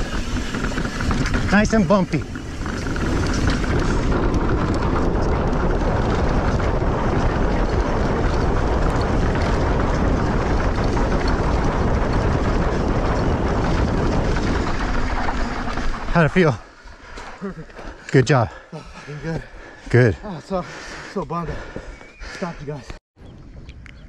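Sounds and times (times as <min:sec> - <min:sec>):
small clicks and rattles: 0:00.0 - 0:17.9
bike tyres rumbling on dirt: 0:00.0 - 0:22.5
wind buffeting microphone: 0:00.0 - 0:24.0.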